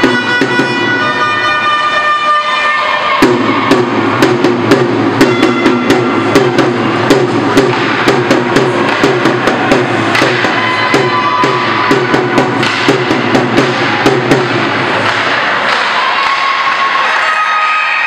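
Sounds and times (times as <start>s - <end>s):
steady drum beat: 3.2s - 15.6s.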